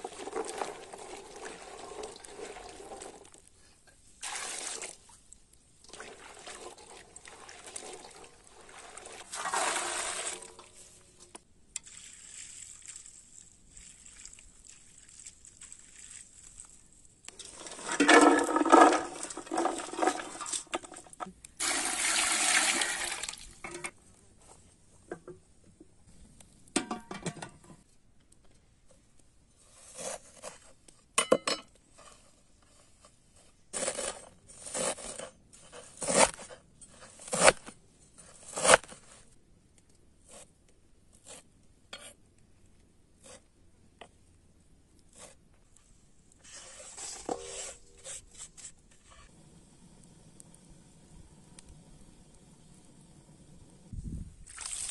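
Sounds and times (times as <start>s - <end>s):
water pouring: 0.0s - 3.4s, 4.2s - 5.1s, 5.8s - 11.0s, 11.8s - 23.9s, 54.4s - 54.9s
water splashing in a steel bowl: 5.8s - 10.9s, 11.8s - 23.8s, 54.4s - 54.9s.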